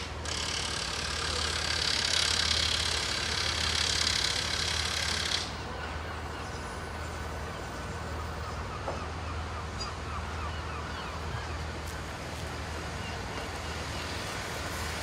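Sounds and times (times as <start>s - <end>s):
train engine hum: 0.0s - 15.0s.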